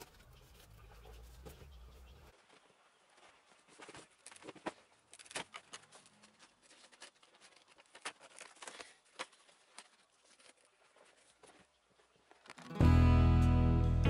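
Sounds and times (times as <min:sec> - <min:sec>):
crackles clicks and scrapes: 0:03.7 - 0:12.8.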